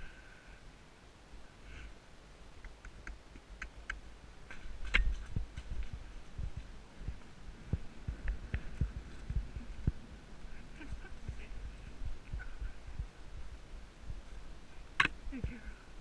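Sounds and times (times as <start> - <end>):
horse hooves thudding on dirt: 2.7 - 10.1.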